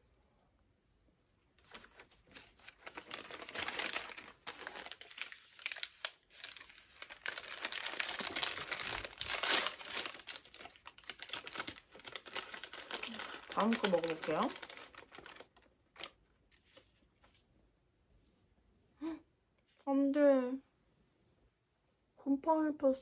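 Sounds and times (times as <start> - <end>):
wrapping crinkling: 1.6 - 17.0.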